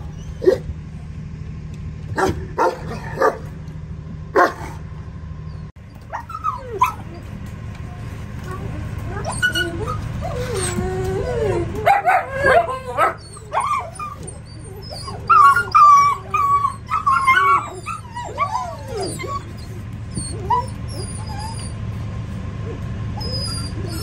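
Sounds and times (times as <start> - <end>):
puppies whining and yipping: 0.0 - 0.7, 5.4 - 7.4, 8.0 - 24.0.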